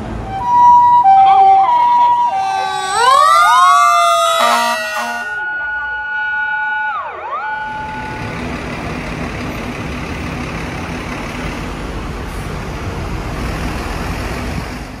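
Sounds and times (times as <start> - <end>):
road noise: 0.0 - 5.8, 7.6 - 15.0
ambulance engine rumble: 0.0 - 6.1, 7.0 - 15.0
siren: 0.4 - 8.3.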